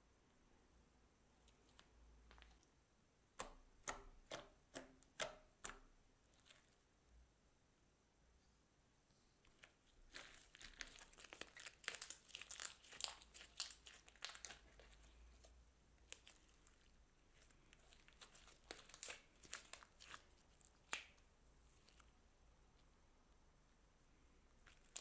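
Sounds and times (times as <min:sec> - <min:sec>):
slime squished by hand: 0:09.5 - 0:22.2, 0:24.5 - 0:25.0.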